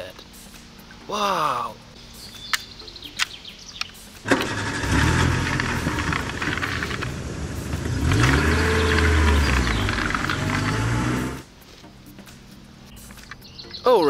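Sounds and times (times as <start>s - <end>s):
car engine revving: 4.3s - 11.5s.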